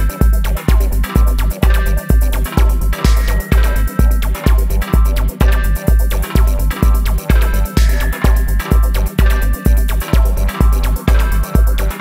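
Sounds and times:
electronic dance music: 0.0s - 12.0s.

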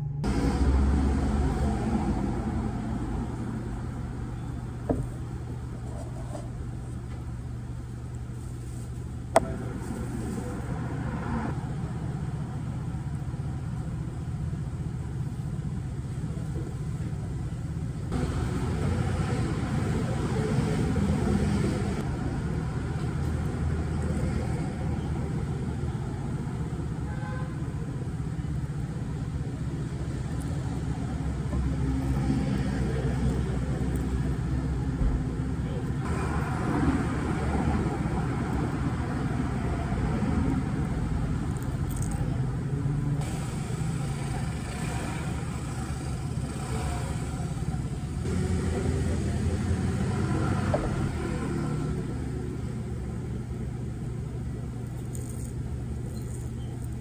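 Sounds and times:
road traffic rumble: 0.0s - 57.0s.

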